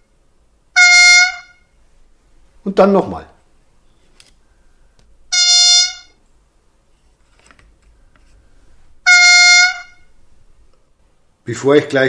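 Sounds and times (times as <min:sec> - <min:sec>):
truck horn through small speaker: 0:00.8 - 0:01.6, 0:05.3 - 0:06.2, 0:09.1 - 0:10.1.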